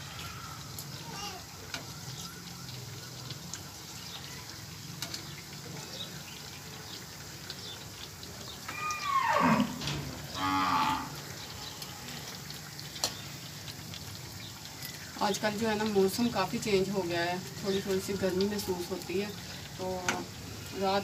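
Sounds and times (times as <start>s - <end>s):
cow mooing: 8.7s - 11.2s.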